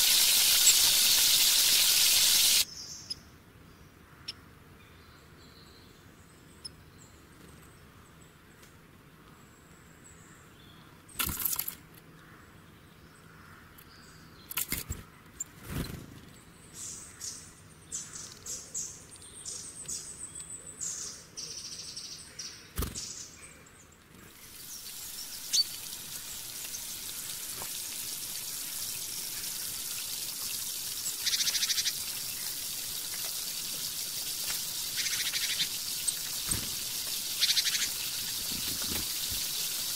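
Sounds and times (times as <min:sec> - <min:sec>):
onions sizzling in hot oil: 0:00.0 - 0:02.6, 0:24.4 - 0:39.9
birds chirping: 0:00.0 - 0:03.3, 0:15.2 - 0:39.9.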